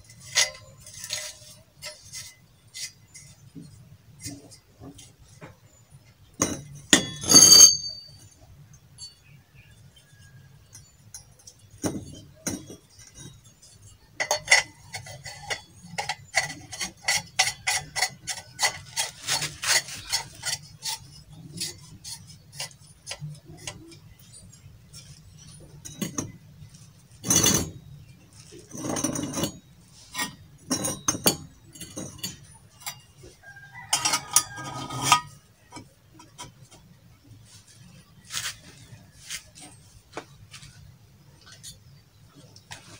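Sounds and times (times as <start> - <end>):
metal knocks and scrapes: 0.0 - 8.4, 10.1 - 42.9.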